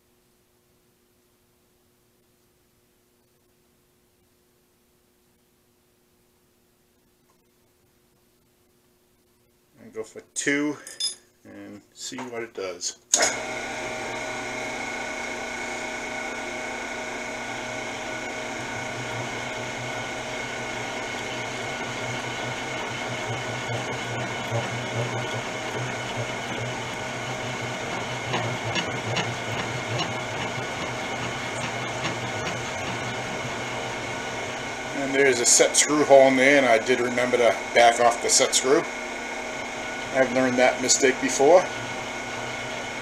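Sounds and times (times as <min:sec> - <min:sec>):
lathe spindle motor whine: 0:13.2 - 0:43.0
boring bar cutting with ticks: 0:20.7 - 0:34.7.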